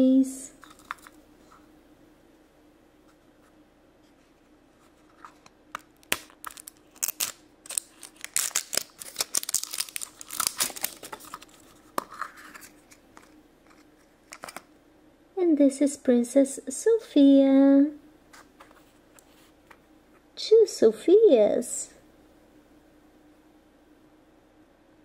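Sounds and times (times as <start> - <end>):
plastic wrapper crinkling and tearing: 5.3 - 14.7.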